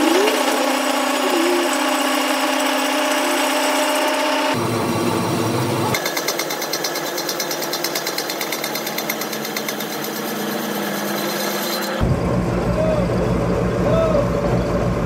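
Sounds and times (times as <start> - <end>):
power tool rattling: 0.0 - 4.5, 6.0 - 12.0.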